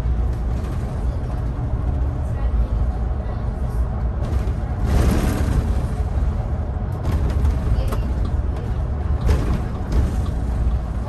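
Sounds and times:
bus engine and road rumble: 0:00.0 - 0:11.0
knocks and rattles: 0:04.1 - 0:11.0.

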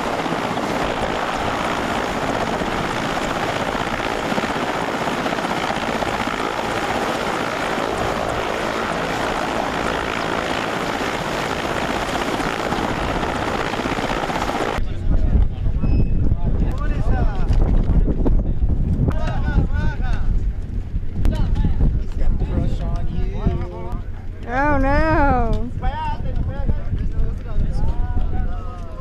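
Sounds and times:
helicopter engines and rotor roar: 0:00.0 - 0:15.8.

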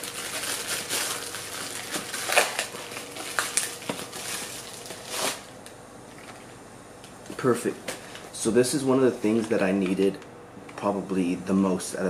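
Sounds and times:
plastic bag crinkling and rustling: 0:00.0 - 0:06.5.

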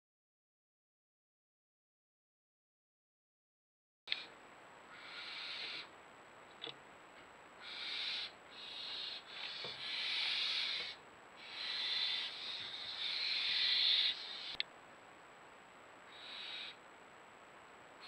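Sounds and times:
owl hissing: 0:04.9 - 0:05.9, 0:07.6 - 0:14.6, 0:16.1 - 0:16.8.

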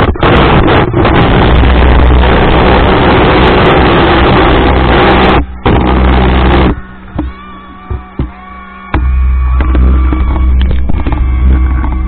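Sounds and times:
speedboat rushing across water: 0:00.0 - 0:07.7
low engine drone: 0:00.0 - 0:12.0.

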